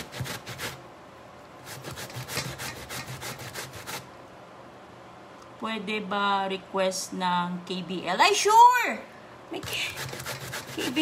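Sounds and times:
root rasping on a metal grater: 0.0 - 0.8, 1.6 - 4.1, 9.6 - 11.0.

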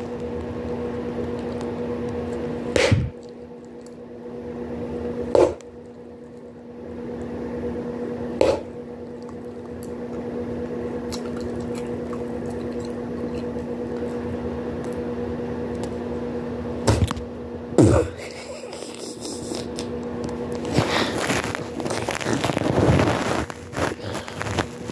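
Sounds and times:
steady low hum: 0.0 - 24.9
gum chewing squishing: 5.4 - 7.3, 8.4 - 15.1, 18.8 - 19.9, 20.5 - 24.9.

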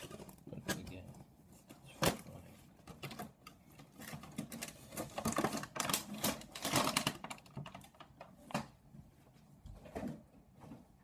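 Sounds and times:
plastic packaging crinkling: 2.9 - 8.6.

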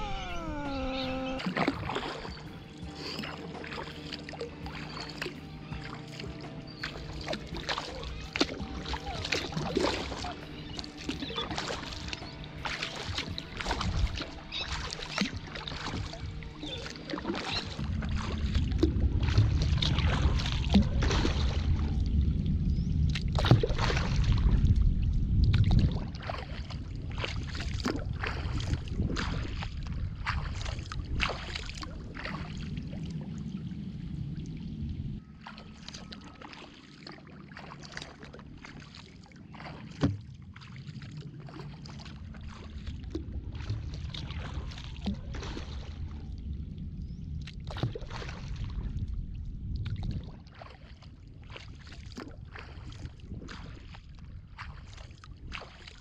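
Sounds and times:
low rumble: 0.0 - 12.5, 17.7 - 36.4, 40.2 - 51.5
paddle splashing in water: 0.0 - 22.3, 23.0 - 46.6, 47.3 - 56.0.

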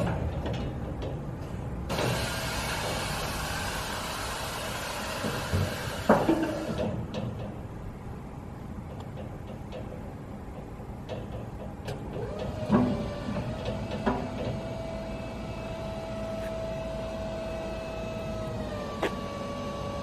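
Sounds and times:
electric motor whine: 12.2 - 20.0.

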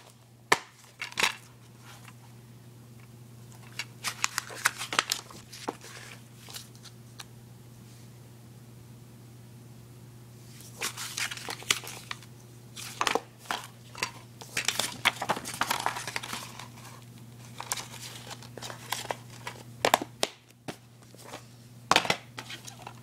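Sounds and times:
plastic cases rustling and clicking: 0.0 - 2.2, 3.5 - 6.8, 10.8 - 23.0.

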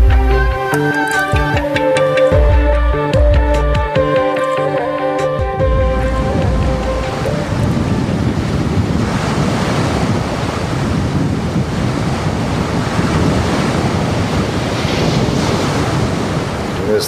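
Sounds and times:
wind on microphone: 5.5 - 17.0
sea surf breaking over rocks: 6.1 - 17.0.

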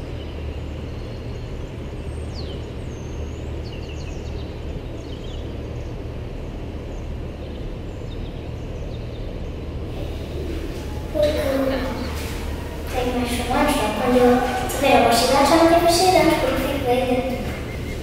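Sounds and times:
boat engine drone: 9.6 - 18.0.

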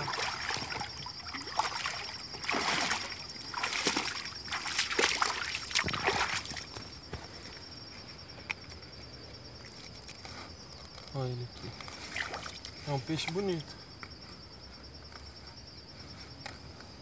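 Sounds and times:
water dripping off sieve: 0.0 - 6.6
water splashing from wading: 0.0 - 6.8.

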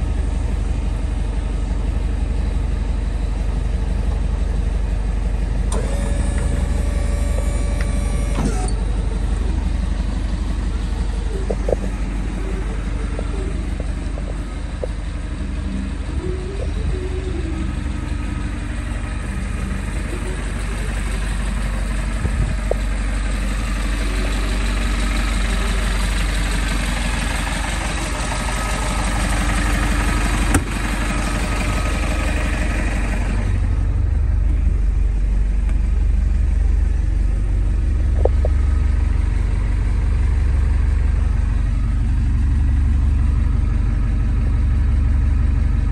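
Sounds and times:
diesel truck engine idling: 0.0 - 45.9
steady pitched tone: 6.5 - 26.2.

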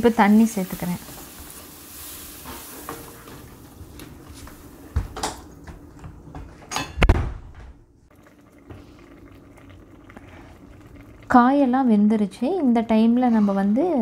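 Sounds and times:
vegetables sizzling in pan: 0.0 - 4.1.

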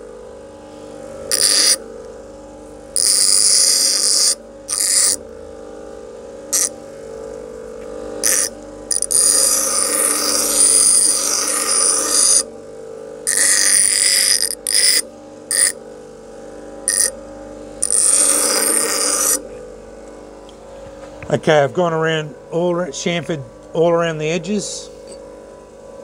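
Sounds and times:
bench grinder motor humming: 0.9 - 21.7
file grinding on wheel: 1.3 - 1.8, 3.0 - 5.2, 6.5 - 6.7, 8.2 - 12.5, 13.2 - 15.8, 16.9 - 17.2, 17.8 - 19.4.

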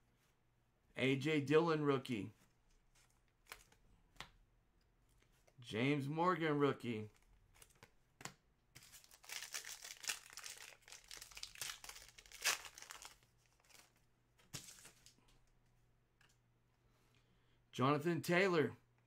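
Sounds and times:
foil pack crinkling: 8.8 - 15.2.

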